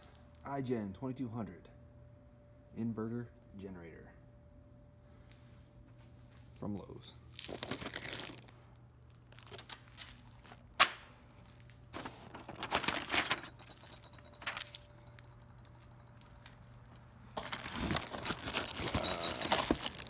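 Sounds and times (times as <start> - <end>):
plastic wrap crinkling: 7.3 - 10.5, 17.4 - 20.0
cardboard rustling: 12.0 - 14.8, 17.4 - 20.0.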